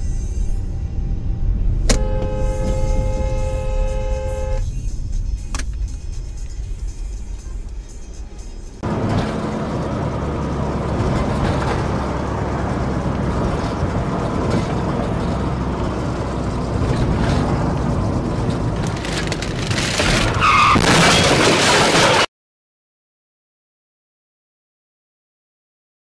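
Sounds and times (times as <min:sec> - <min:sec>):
car engine and tyre noise: 0:00.0 - 0:22.3
tyre squeal: 0:19.1 - 0:21.2.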